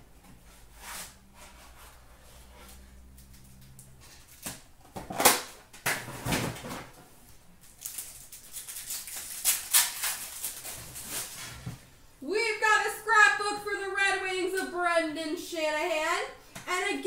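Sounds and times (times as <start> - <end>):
wrappers crinkling: 7.6 - 11.4.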